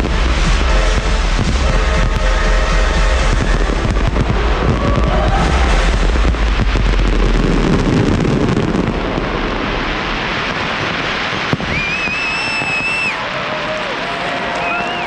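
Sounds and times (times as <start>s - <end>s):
firework crack: 0.0s - 15.0s
fireworks crackling: 0.0s - 15.0s
shrill firework whistle: 11.5s - 13.3s, 14.5s - 15.0s.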